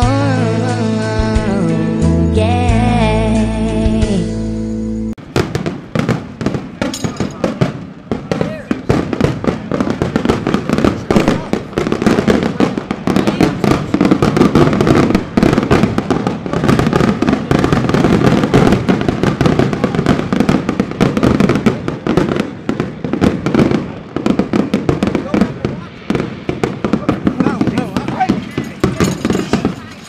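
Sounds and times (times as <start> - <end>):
crowd voices talking: 6.4 - 30.0.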